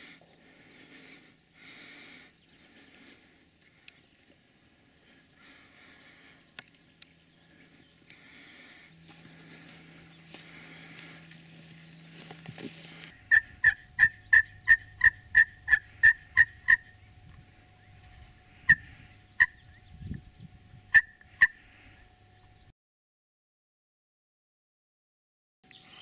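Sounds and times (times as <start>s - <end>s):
turkey call yelps: 13.2s - 17.0s, 18.6s - 19.6s, 20.9s - 21.8s.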